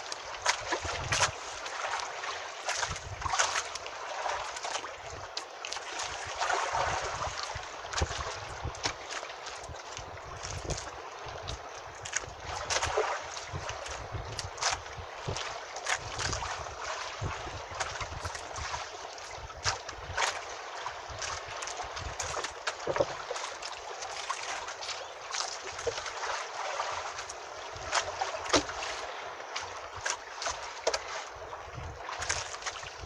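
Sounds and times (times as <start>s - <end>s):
water lapping against boat hull: 0.0s - 33.0s.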